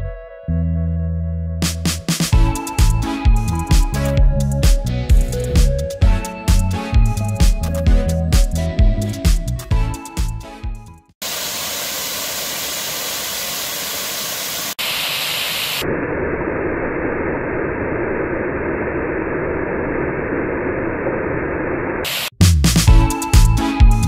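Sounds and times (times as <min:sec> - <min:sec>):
waterfall rushing into pool: 0:11.2 - 0:15.9.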